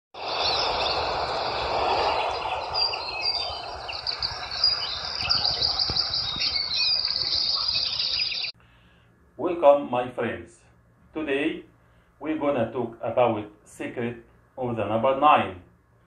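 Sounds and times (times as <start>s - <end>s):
steady background hiss: 0.2s - 7.7s, 8.4s - 16.0s
birds chirping and calling: 0.2s - 8.5s.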